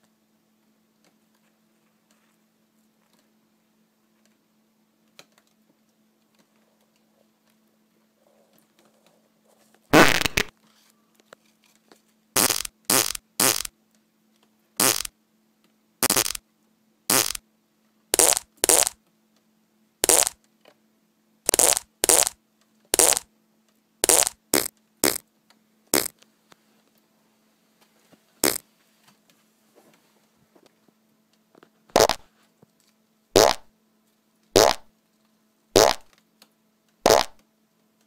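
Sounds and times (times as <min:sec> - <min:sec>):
fart sound effects: 0:09.9 - 0:10.5, 0:12.4 - 0:13.7, 0:14.8 - 0:15.1, 0:16.0 - 0:16.4, 0:17.1 - 0:17.4, 0:18.1 - 0:19.0, 0:20.0 - 0:20.4, 0:21.5 - 0:23.3, 0:24.0 - 0:25.2, 0:26.0 - 0:26.2, 0:28.4 - 0:28.6, 0:31.9 - 0:32.3, 0:33.4 - 0:33.7, 0:34.6 - 0:34.9, 0:35.8 - 0:36.1, 0:37.0 - 0:37.4.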